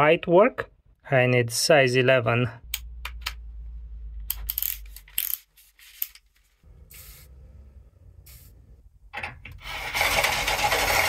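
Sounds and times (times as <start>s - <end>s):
short scraping hisses: 6.8s - 7.4s, 8.2s - 8.6s.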